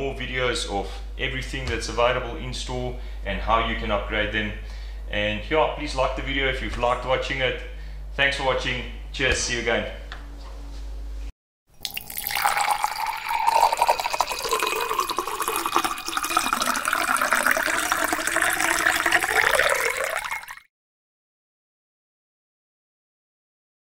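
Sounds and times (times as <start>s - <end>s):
low room hum: 0.0s - 11.3s
liquid pouring and splashing: 11.8s - 20.7s.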